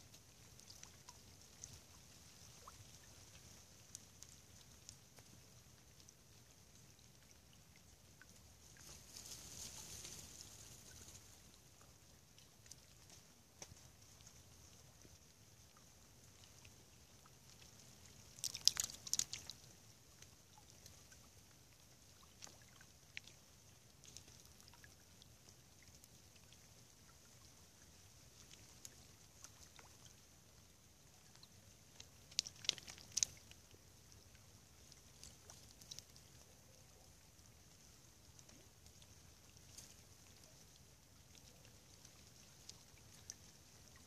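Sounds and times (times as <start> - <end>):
faint steady hiss: 0.0 - 44.0
small ticks: 0.0 - 44.0
sharp splashy clicks: 17.5 - 19.7, 31.4 - 33.6.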